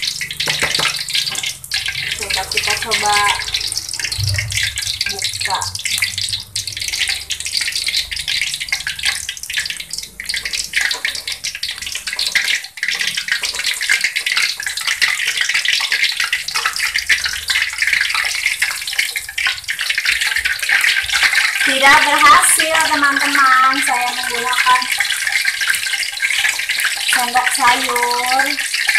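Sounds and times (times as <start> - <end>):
oil sizzling and crackling: 0.0 - 28.9.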